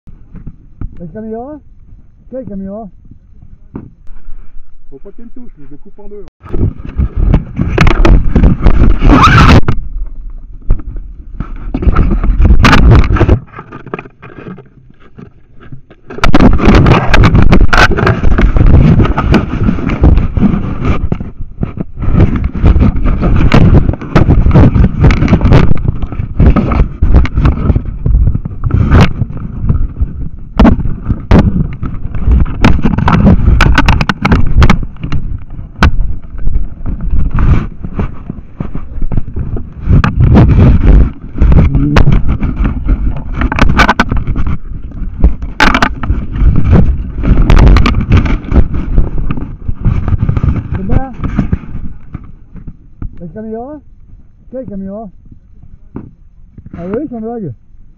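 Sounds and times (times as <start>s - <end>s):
microphone handling rubbing: 0.1s - 57.6s
sharp clicks and knocks: 9.6s - 53.3s.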